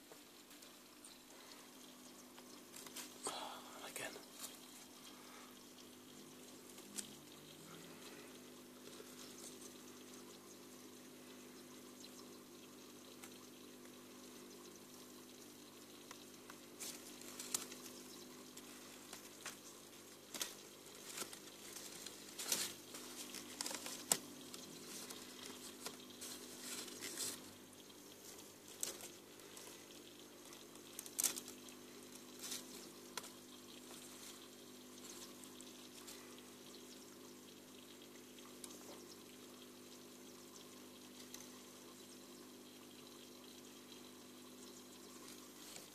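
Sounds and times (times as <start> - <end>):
low pump hum: 0.0 - 45.9
small waterfall trickling: 0.0 - 45.9
faint clicks and rustles: 4.2 - 39.3.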